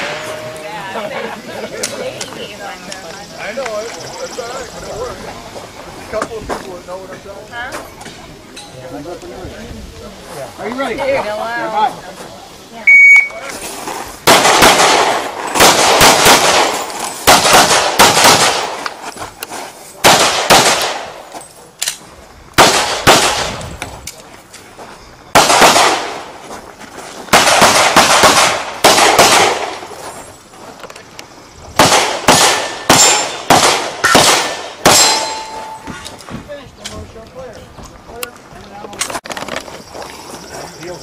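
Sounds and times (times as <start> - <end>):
pistol shots with echo: 14.2 - 18.8, 20.0 - 21.2, 22.6 - 23.6, 25.3 - 26.3, 27.3 - 29.9, 31.8 - 35.8.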